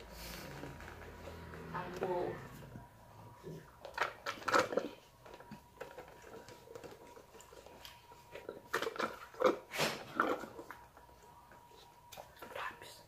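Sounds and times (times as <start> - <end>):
chewing: 3.4 - 12.7.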